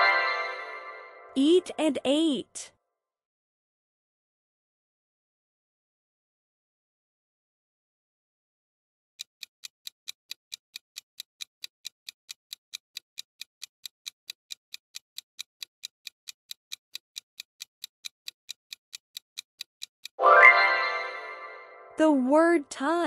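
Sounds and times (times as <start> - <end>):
clock ticking: 9.2 - 20.2.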